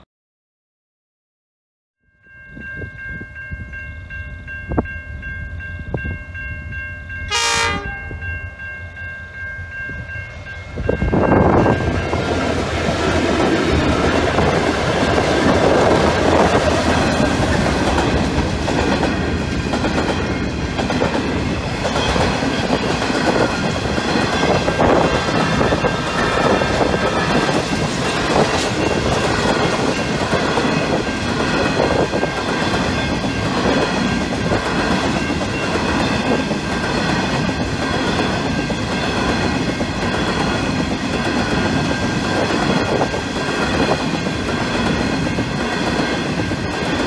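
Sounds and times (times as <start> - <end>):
level crossing warning bells: 2.1 - 39.6
diesel locomotive engine: 2.6 - 47.0
train horn: 7.3 - 8.2.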